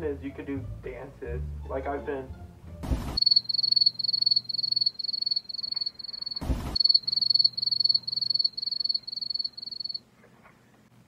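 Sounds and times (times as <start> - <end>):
cricket chirping: 3.2 - 10.0.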